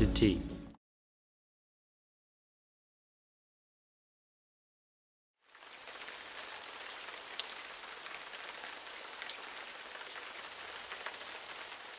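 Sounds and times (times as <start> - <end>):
rain hissing on a surface: 5.4 - 11.9.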